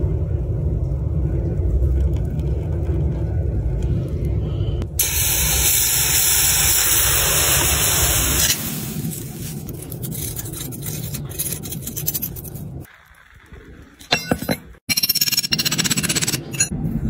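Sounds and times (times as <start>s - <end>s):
low rumble: 0.0s - 14.6s, 16.6s - 17.0s
molten metal hissing: 4.6s - 10.8s.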